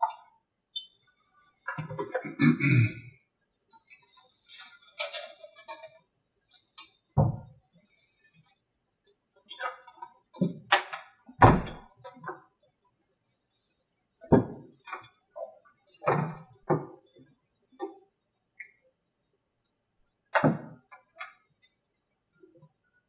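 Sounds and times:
objects thunking on a tabletop: 7.2s - 7.6s, 10.4s - 11.9s, 14.3s - 15.0s, 20.4s - 21.0s.

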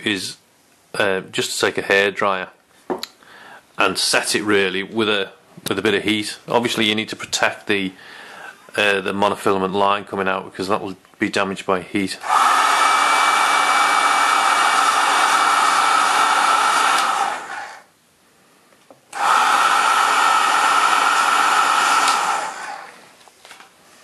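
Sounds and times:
hair dryer blowing: 12.2s - 17.9s, 19.1s - 23.2s.

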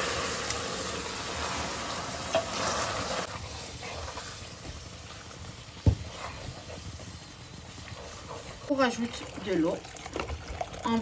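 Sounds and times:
sugar syrup sizzling in pot: 0.0s - 11.0s
wooden spoon stirring: 5.8s - 10.6s.

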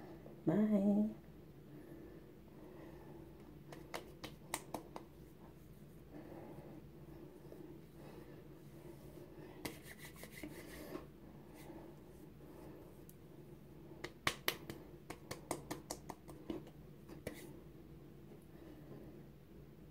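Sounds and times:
fingertips patting facial skin: 3.7s - 5.2s, 9.6s - 10.8s, 14.0s - 17.5s.

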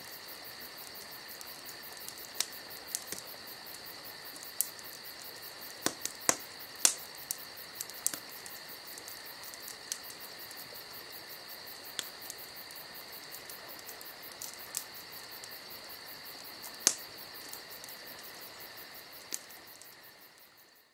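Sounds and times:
high insect trill: 0.0s - 20.9s.

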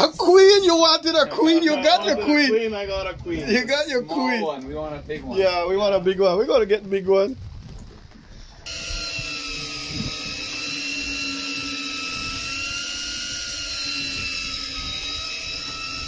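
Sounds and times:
fishing reel motor whining: 8.6s - 16.0s.

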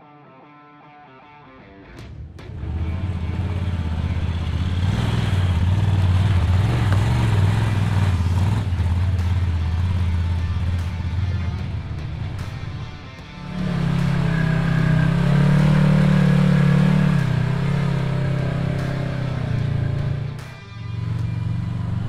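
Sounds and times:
vehicle engine droning: 2.4s - 22.0s.

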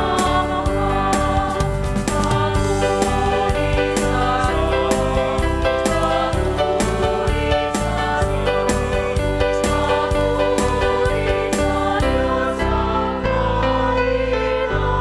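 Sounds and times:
worship music singing: 0.0s - 15.0s.

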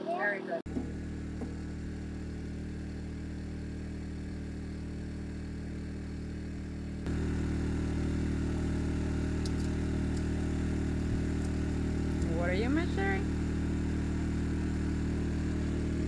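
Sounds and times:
engine humming steadily: 0.7s - 16.0s.

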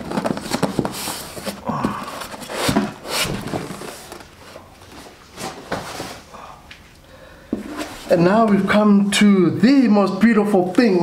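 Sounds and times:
foam tray scraping and rustling: 0.0s - 6.2s.

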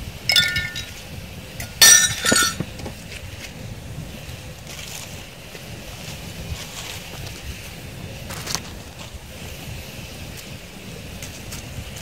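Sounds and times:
steady low rumble: 0.0s - 12.0s
glassware clinking: 0.3s - 0.9s, 1.6s - 2.7s.

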